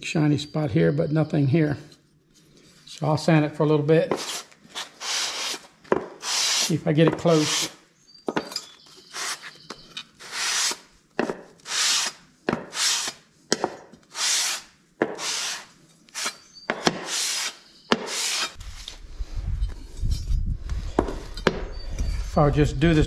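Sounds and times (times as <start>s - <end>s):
metal rasping on sandpaper: 4.1s - 7.8s, 9.0s - 9.6s, 10.2s - 10.9s, 11.6s - 13.2s, 14.1s - 18.9s.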